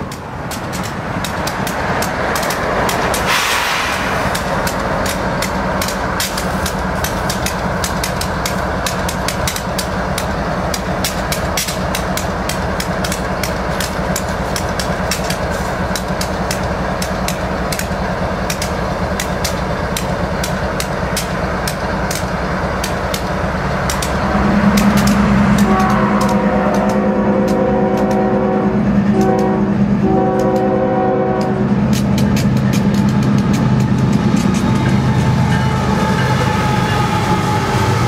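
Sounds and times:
sharp clicks: 0.0 - 28.2, 31.4 - 35.3
locomotive engine running: 0.0 - 38.0
short burst of hiss: 3.3 - 4.3.

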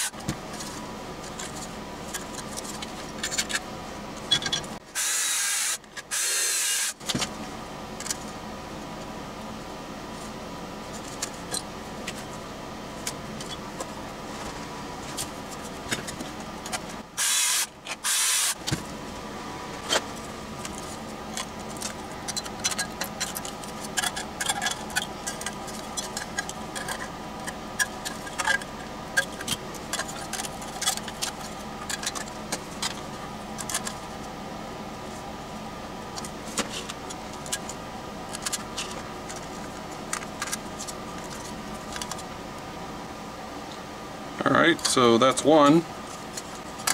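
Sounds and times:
faint hum: 0.0 - 46.9
metal parts and tools rattling: 20.6 - 33.0.

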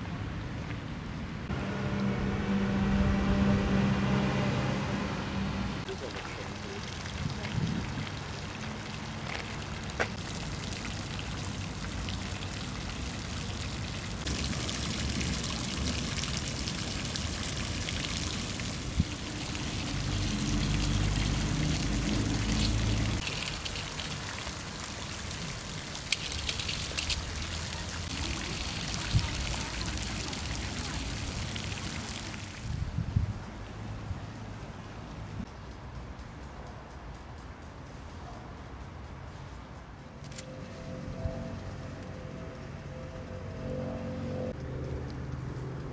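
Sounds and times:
water hissing: 5.8 - 32.4.

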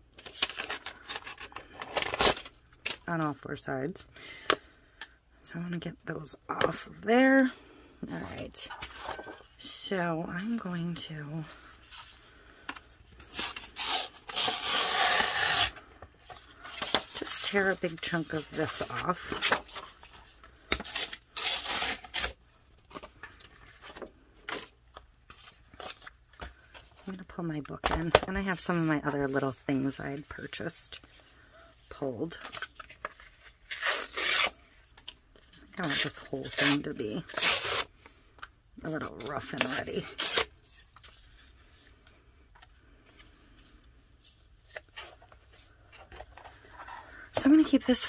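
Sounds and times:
paper tearing: 13.3 - 15.8, 20.7 - 22.4, 33.6 - 34.6, 35.8 - 37.9, 39.3 - 40.5.

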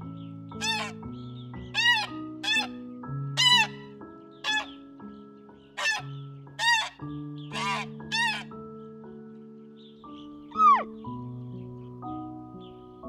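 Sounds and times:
soft background music: 0.0 - 13.0
swans bugling: 10.5 - 11.0.

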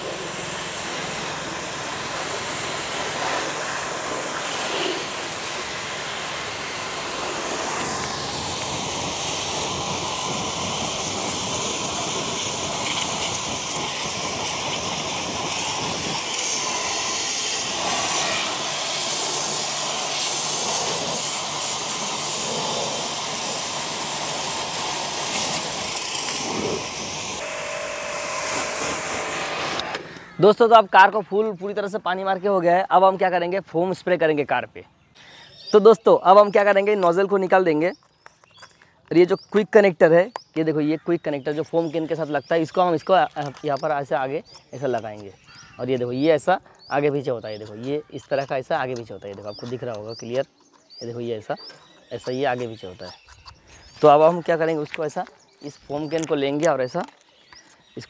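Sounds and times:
pressure washer spraying water: 0.0 - 30.1.

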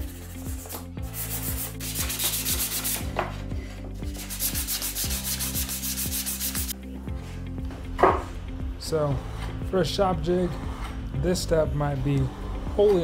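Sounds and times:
abrasive tool rubbing wood: 4.1 - 6.8.

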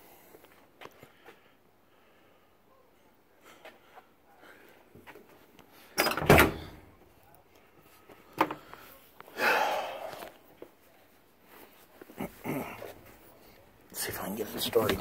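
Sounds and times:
sharp door click: 6.0 - 6.8.

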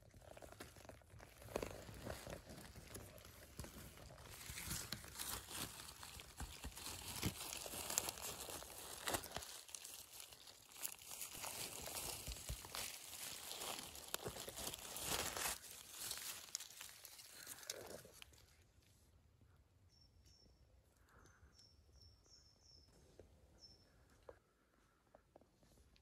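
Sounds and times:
footsteps crunching dry leaves: 1.5 - 18.5.

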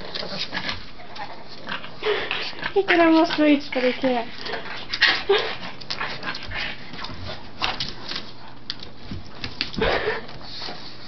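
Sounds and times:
dog panting: 0.0 - 7.6.

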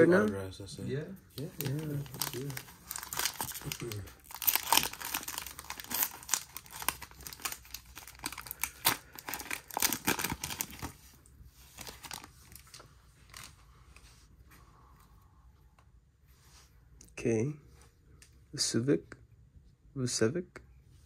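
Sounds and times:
wrapper tearing and crinkling: 1.4 - 11.0, 11.8 - 13.5.

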